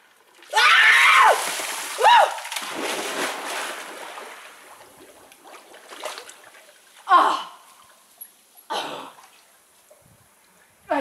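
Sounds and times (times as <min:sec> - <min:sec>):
water splashing on tiles: 0:00.4 - 0:04.4.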